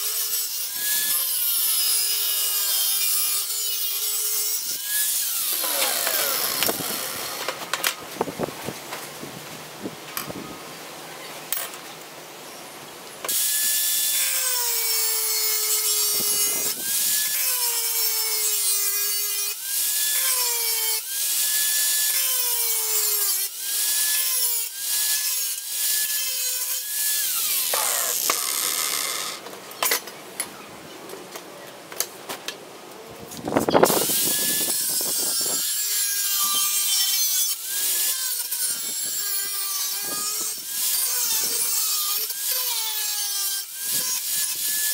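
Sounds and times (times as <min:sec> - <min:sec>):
angle grinder cutting steel: 0:00.0 - 0:08.0, 0:13.3 - 0:30.0, 0:33.8 - 0:44.9.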